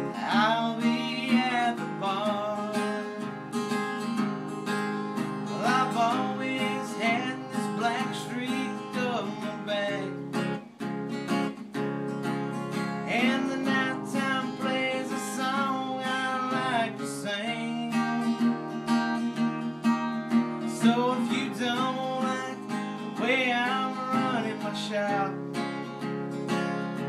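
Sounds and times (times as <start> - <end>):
man singing: 0.0 - 3.4, 5.4 - 10.4, 13.0 - 18.5, 20.6 - 25.4
acoustic guitar strumming: 0.0 - 27.0.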